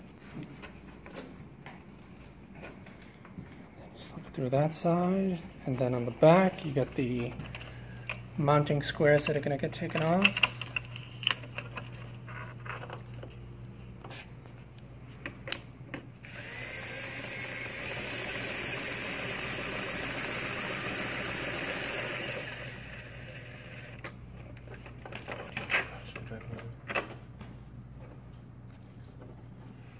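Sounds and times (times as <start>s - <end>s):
cordless drill driving screw: 16.2s - 24.0s.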